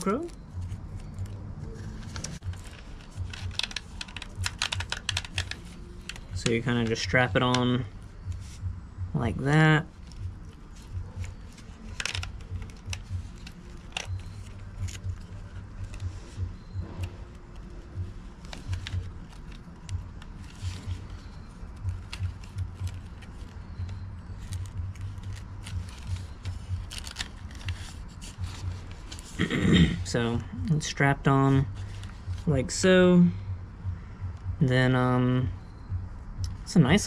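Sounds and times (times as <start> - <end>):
strap and helmet clicks and rustles: 0.0 - 8.6, 9.9 - 29.4, 31.7 - 32.5.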